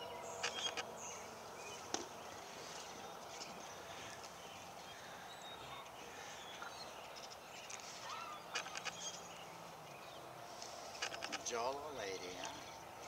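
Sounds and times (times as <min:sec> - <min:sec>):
sharp clicks: 0:11.0 - 0:11.4.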